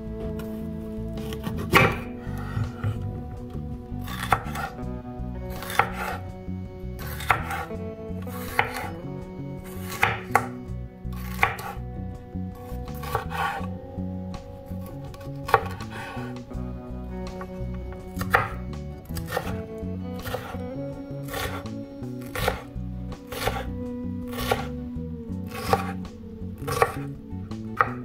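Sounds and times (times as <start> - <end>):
knife slicing pepper: 1.2 - 3.0, 4.0 - 4.8, 5.5 - 6.2, 7.0 - 7.7, 8.3 - 9.0, 9.7 - 11.8, 12.6 - 13.7, 14.8 - 16.3, 18.2 - 19.6, 20.2 - 20.6, 21.2 - 22.7, 23.3 - 23.7, 24.3 - 24.8, 25.5 - 26.0, 26.6 - 27.1.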